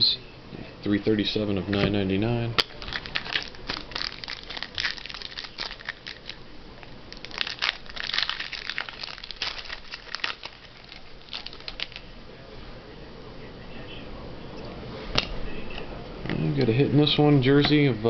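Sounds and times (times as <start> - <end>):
card pack wrapper crinkling and tearing: 2.6 - 6.4, 7.1 - 12.1.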